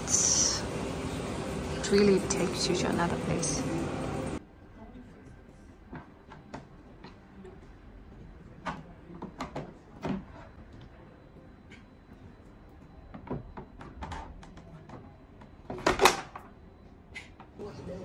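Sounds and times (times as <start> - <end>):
low background hum: 0.0 - 18.0.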